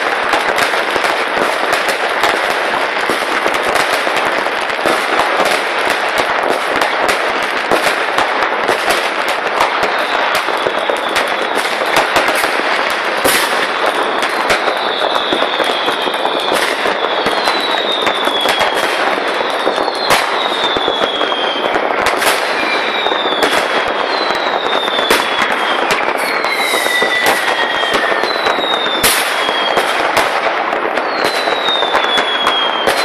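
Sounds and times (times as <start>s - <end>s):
fireworks and firecrackers: 0.0s - 33.0s.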